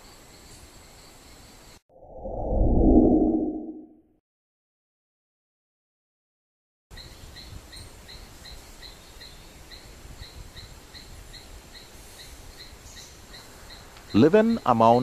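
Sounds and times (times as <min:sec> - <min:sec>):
low rumble: 0:02.0 - 0:03.9.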